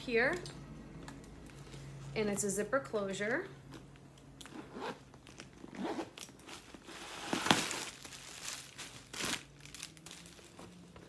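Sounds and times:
handbag zipper being pulled: 0:04.4 - 0:05.0, 0:05.6 - 0:06.4
bag rustling: 0:04.6 - 0:10.9.

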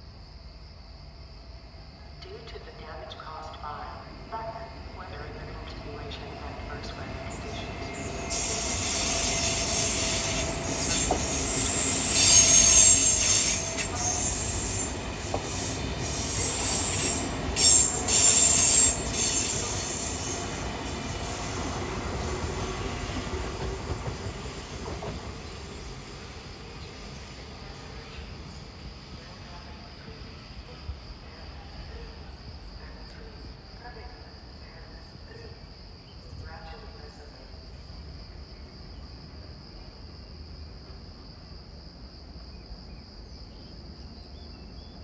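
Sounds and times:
train wheels squealing: 0:06.9 - 0:21.6.

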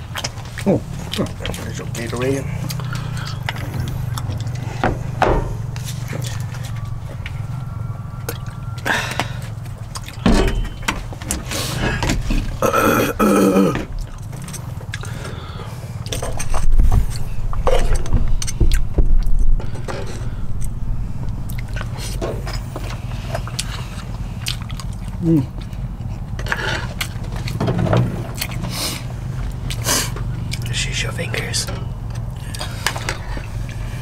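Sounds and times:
steady low hum: 0:00.0 - 0:34.0
short vocal sound: 0:25.2 - 0:25.6.

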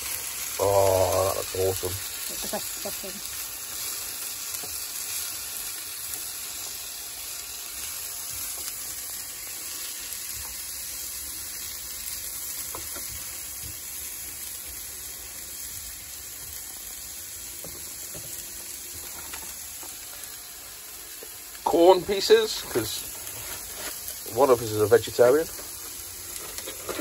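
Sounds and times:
vegetables sizzling in a pan: 0:00.0 - 0:27.0
wooden spoon scraping a pan: 0:22.6 - 0:24.4, 0:25.5 - 0:27.0.

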